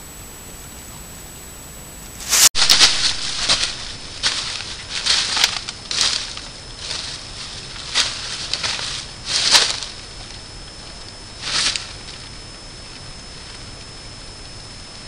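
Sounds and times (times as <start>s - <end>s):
hooves crunching dry leaves: 2.2s - 12.4s.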